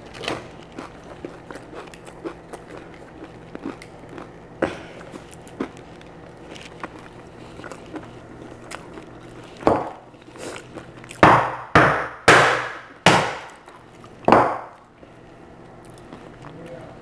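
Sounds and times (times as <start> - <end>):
hard blows cracking lobster shell: 11.2 - 14.8.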